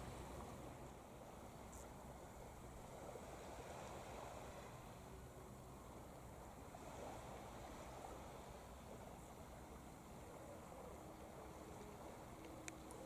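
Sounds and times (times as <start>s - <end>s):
small tick: 11.8s - 13.0s.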